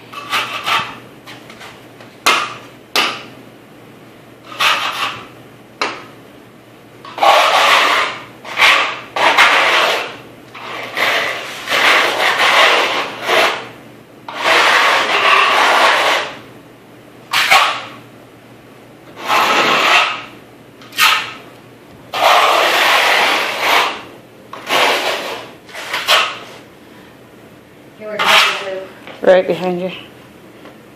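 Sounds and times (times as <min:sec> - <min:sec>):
floor scraper on concrete: 0:04.5 - 0:05.3, 0:07.1 - 0:13.6, 0:14.3 - 0:16.4, 0:17.3 - 0:17.9, 0:19.2 - 0:20.3, 0:21.0 - 0:21.4, 0:22.1 - 0:26.6, 0:28.0 - 0:28.8.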